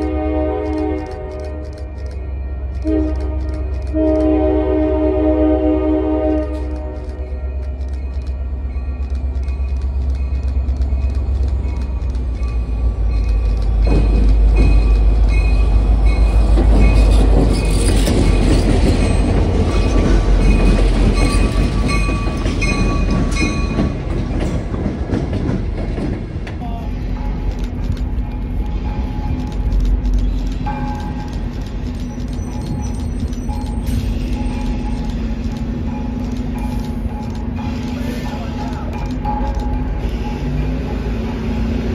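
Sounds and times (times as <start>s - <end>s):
diesel locomotive engine rumbling: 0.0s - 41.9s
railroad crossing bell: 6.4s - 24.2s, 26.7s - 29.7s, 30.6s - 31.4s, 32.3s - 41.9s.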